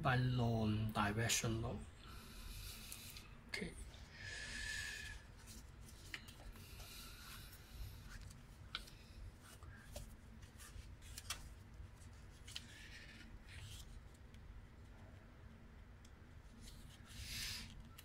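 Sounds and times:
book pages turning: 5.4s - 14.3s
paper rustling: 8.0s - 14.0s.

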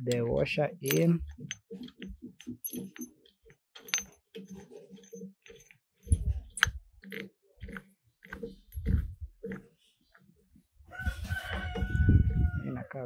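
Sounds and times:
washer clinking on shaft: 0.8s - 1.6s.

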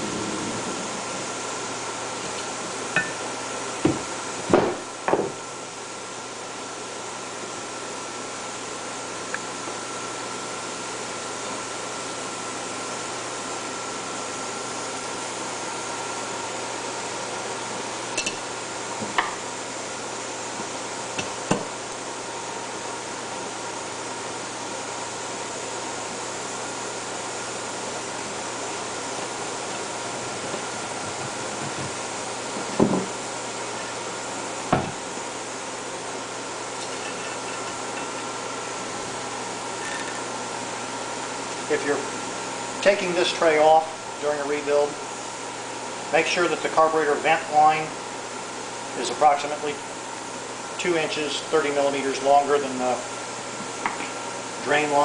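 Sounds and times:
steady hiss with faint hum: 10.4s - 55.0s.

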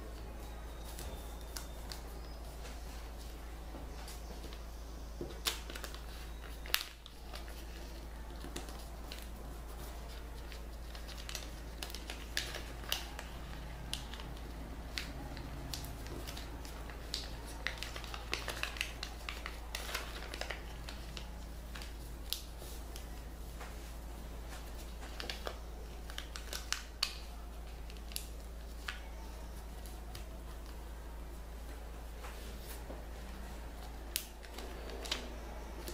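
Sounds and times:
paper being folded and creased: 5.2s - 23.3s, 24.5s - 30.8s, 33.8s - 35.9s.

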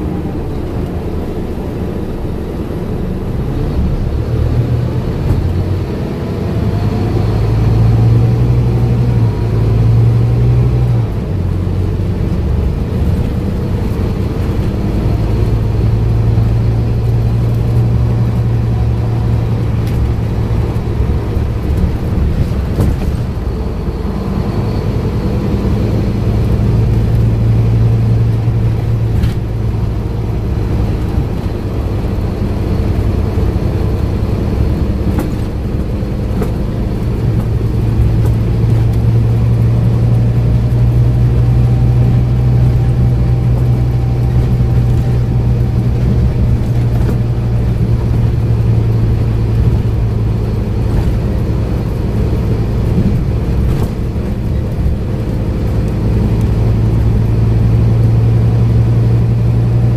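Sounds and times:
bus diesel engine droning: 0.0s - 59.9s
light knocks from bus body: 21.5s - 23.6s, 34.9s - 37.4s.

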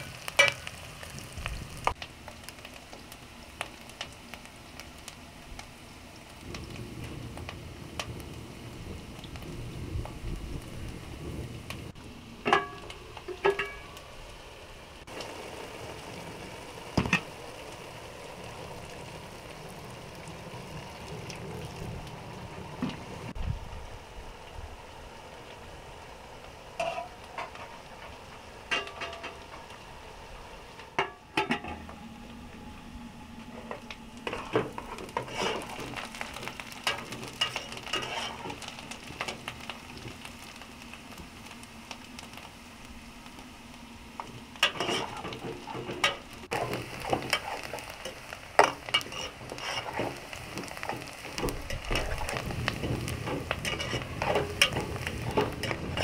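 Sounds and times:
food sizzling in pot: 0.0s - 56.0s
metal spoon scraping pot: 37.4s - 38.5s, 44.6s - 45.3s, 53.6s - 56.0s.

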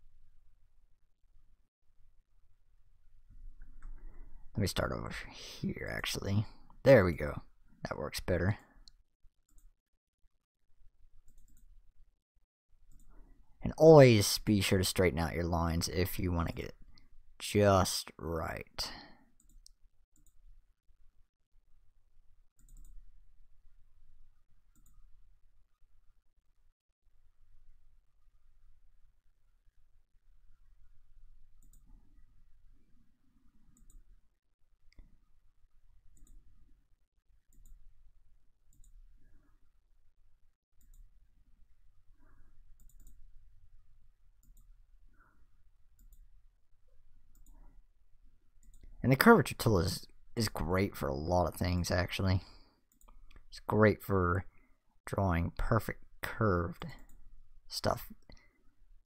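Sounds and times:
computer mouse clicks: 11.2s - 11.8s, 12.9s - 13.2s, 19.4s - 20.4s, 22.6s - 23.0s, 24.7s - 25.1s, 31.6s - 32.2s, 33.6s - 34.1s, 36.1s - 36.5s, 37.5s - 37.8s, 38.7s - 39.4s, 40.8s - 41.1s, 42.7s - 43.2s, 44.4s - 45.2s, 46.0s - 46.3s, 47.3s - 47.7s, 48.6s - 49.0s
faint computer mouse clicks: 42.8s - 43.2s, 47.3s - 47.7s.

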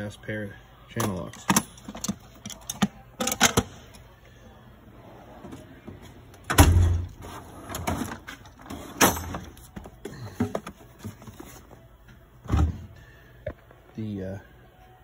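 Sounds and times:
tools clattering: 1.3s - 3.7s, 7.7s - 11.2s
metal drawer banging shut: 6.4s - 9.6s, 12.4s - 12.9s.

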